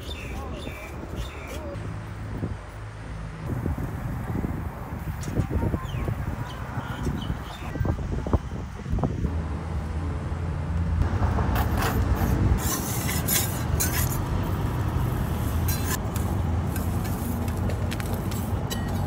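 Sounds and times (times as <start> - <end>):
metal spatula scraping griddle: 11.7 - 14.3, 15.4 - 16.0.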